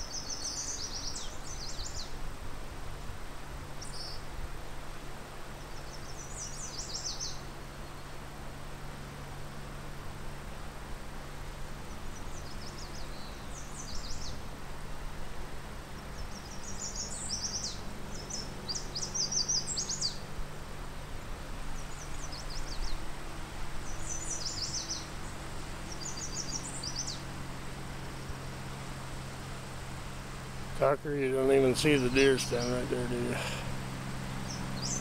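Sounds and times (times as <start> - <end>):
songbird singing: 0.0 - 2.3, 3.7 - 4.3, 5.5 - 8.2, 11.7 - 14.6, 15.6 - 35.0.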